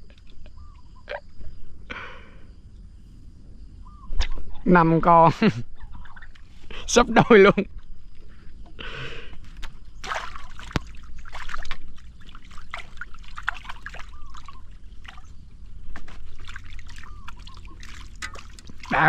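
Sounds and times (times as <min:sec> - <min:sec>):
water splashing and trickling: 0:04.2 - 0:08.2, 0:09.3 - 0:19.0.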